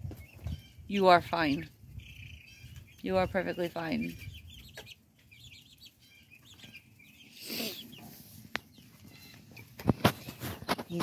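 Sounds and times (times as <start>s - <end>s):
chicks peeping: 0.0s - 11.0s
rustling noise: 8.1s - 11.0s.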